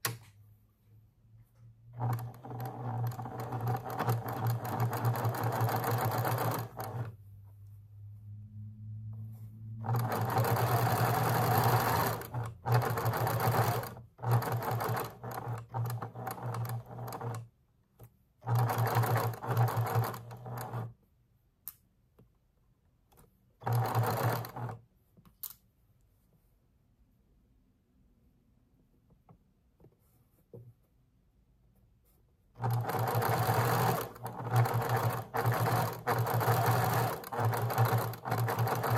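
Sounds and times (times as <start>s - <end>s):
sewing machine stitching: 1.9s - 7.2s, 9.8s - 17.5s, 18.4s - 21.0s, 23.6s - 24.8s, 32.6s - 38.9s.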